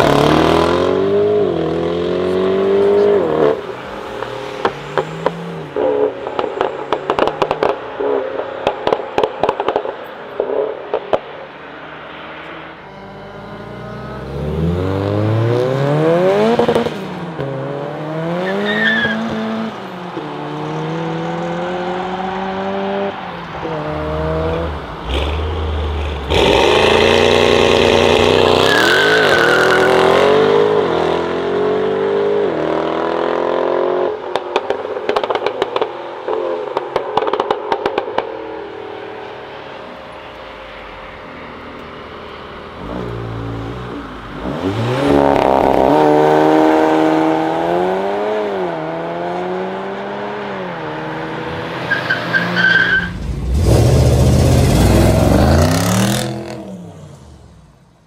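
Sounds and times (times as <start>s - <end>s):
exhaust crackling and popping: 5.8s - 11.2s
car accelerating with gear changes: 12.4s - 19.8s
sports car engine accelerating: 12.5s - 18.6s.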